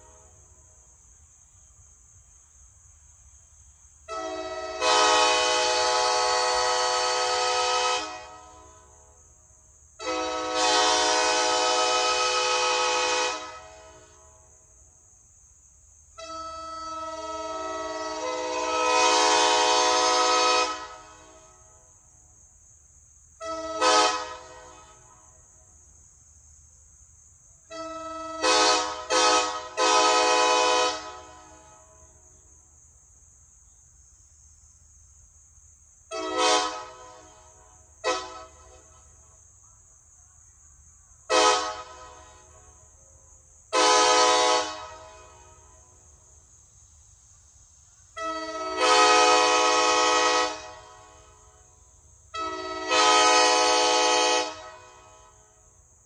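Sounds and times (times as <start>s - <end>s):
locomotive air horn blasts: 4.1s - 9.2s, 10.0s - 14.6s, 16.2s - 21.7s, 23.4s - 25.3s, 27.7s - 32.2s, 36.1s - 39.0s, 41.3s - 42.6s, 43.7s - 45.9s, 48.1s - 55.6s.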